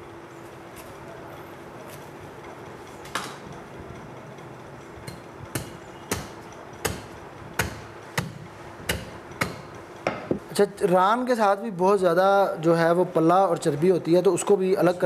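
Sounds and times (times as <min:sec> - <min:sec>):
heavy knife chopping meat: 0:05.1 - 0:09.7.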